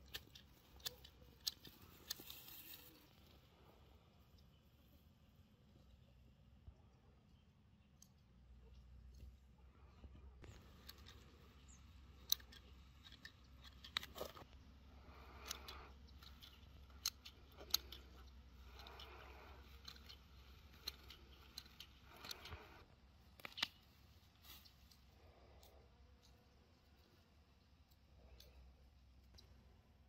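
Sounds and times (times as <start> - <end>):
plants rustling: 0.0 - 3.9, 10.4 - 25.6.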